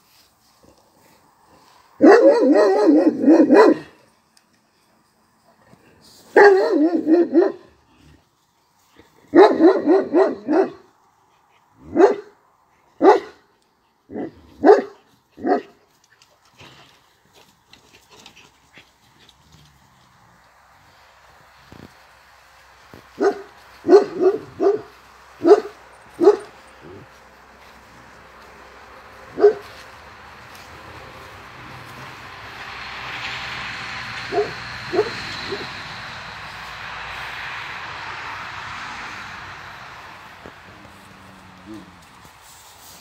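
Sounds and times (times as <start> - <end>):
dog barking: 2.0 - 4.0, 6.3 - 7.7, 9.3 - 10.9, 11.8 - 12.4, 13.0 - 13.4, 14.1 - 15.8, 23.2 - 27.1, 29.3 - 29.8, 34.3 - 35.7.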